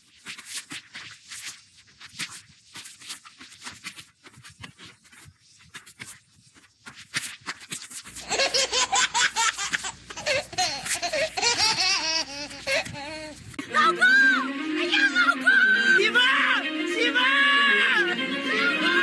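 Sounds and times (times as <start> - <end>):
loud high-pitched laughter: 8.2 - 13.9.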